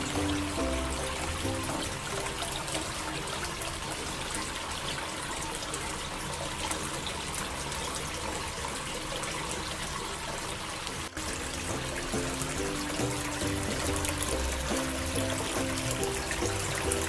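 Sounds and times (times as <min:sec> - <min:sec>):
fountain water trickling: 0:00.0 - 0:17.0.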